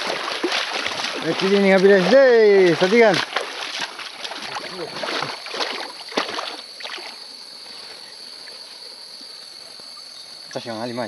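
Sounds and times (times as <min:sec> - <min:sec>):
water splashing in stream: 0:00.0 - 0:07.4
night insects chirring: 0:00.0 - 0:11.0.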